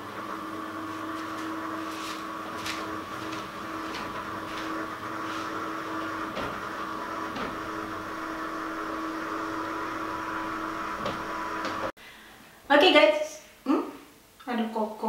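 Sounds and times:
shutter motor hum: 0.6 - 11.9.

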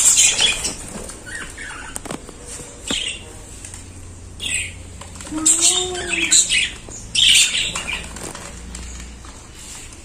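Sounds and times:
budgerigars chirping and chattering: 0.0 - 2.1, 2.8 - 3.4, 4.3 - 8.3.

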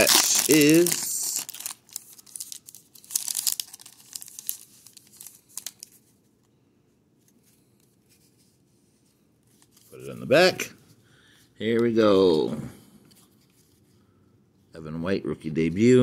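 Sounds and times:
foil wrapper crinkling and tearing: 0.0 - 6.0.

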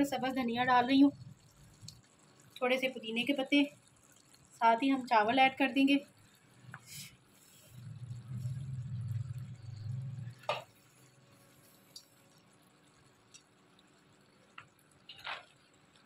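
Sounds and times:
low hum: 7.6 - 10.5.

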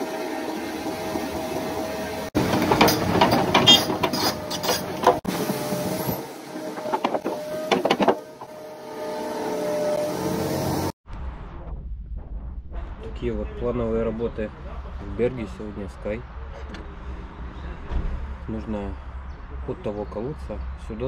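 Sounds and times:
diesel engine running: 0.0 - 11.0
metallic clanks and knocks: 2.4 - 5.3, 6.8 - 8.6.

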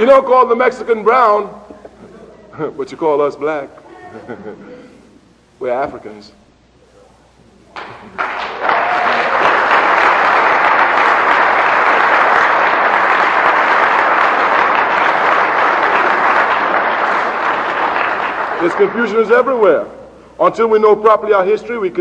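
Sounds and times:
audience applauding: 7.8 - 19.5.

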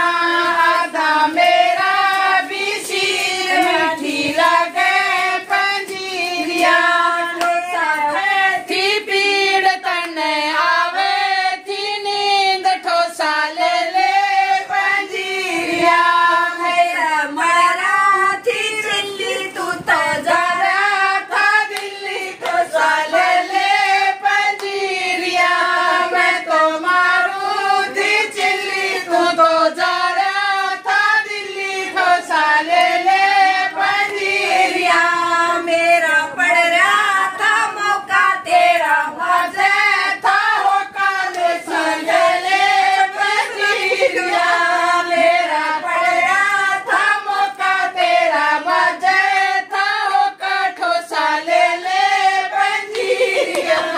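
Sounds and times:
hand claps keeping time: 0.0 - 9.1, 18.8 - 29.4, 30.0 - 47.8, 51.8 - 53.9
women singing folk song: 0.0 - 53.9.

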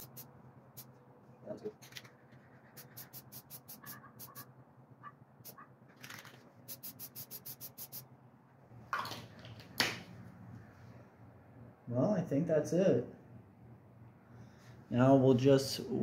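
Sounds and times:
spray can ball rattling: 0.0 - 0.9, 1.8 - 4.4, 6.0 - 8.0
spray paint hissing: 0.0 - 0.9, 2.6 - 4.5, 6.7 - 8.0.

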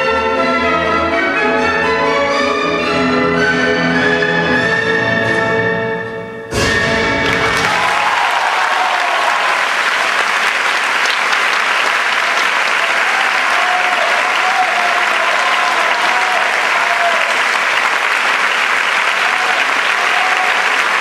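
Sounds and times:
orchestral music chord: 4.4 - 7.7
audience applauding loudly: 7.2 - 21.0
wavering cheer: 7.2 - 21.0.

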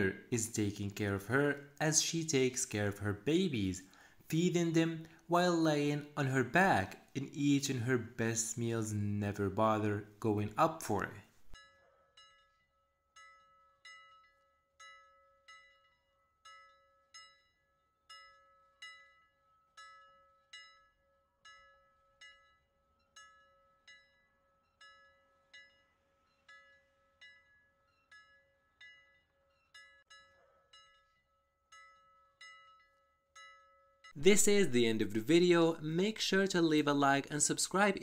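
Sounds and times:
steady held tone: 9.9 - 38.0
plucked bell-like melody: 10.9 - 36.8.

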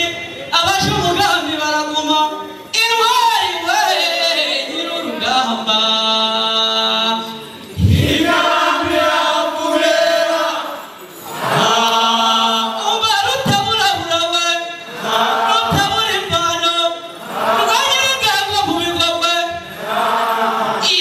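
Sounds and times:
group of singers chanting: 7.8 - 12.8, 14.9 - 16.0, 17.2 - 17.9, 19.7 - 20.9.

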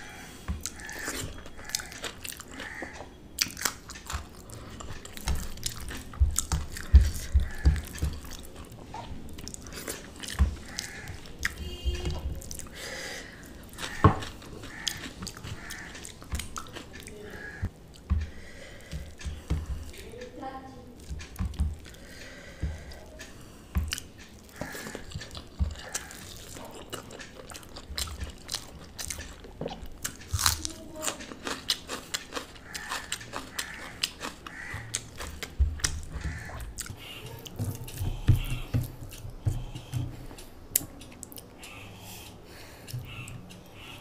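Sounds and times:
chewing and crunching: 0.6 - 20.0, 23.9 - 43.8.

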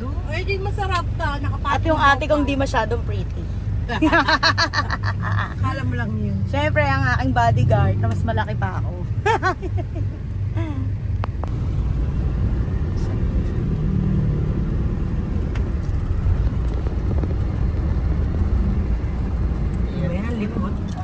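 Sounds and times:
car engine and road noise: 0.0 - 21.0.

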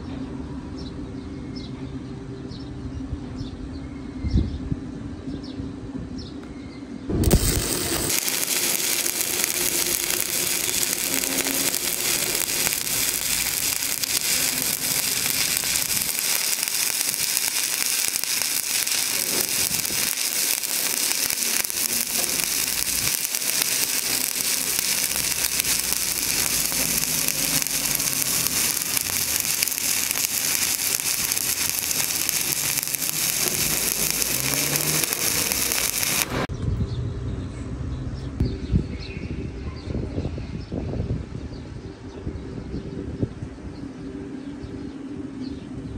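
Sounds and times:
welding arc crackling: 7.1 - 36.5.

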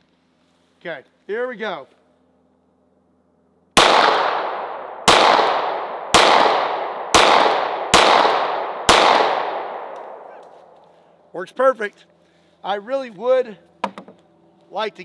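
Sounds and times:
pistol shots with echo: 3.8 - 10.4.

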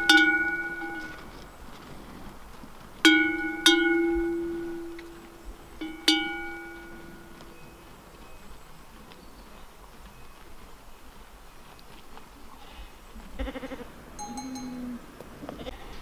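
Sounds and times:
sheep bell clanking: 0.0 - 1.5, 3.0 - 8.6, 14.2 - 15.0.

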